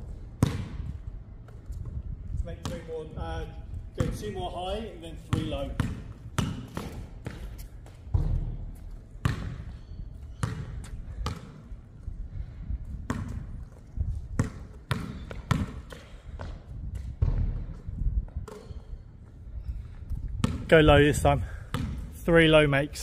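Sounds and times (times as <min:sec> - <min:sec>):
basketball bouncing on hard court: 0:00.4 - 0:01.0, 0:02.6 - 0:03.0, 0:03.9 - 0:04.4, 0:05.2 - 0:11.7, 0:12.8 - 0:19.0, 0:20.4 - 0:20.8, 0:21.5 - 0:22.2.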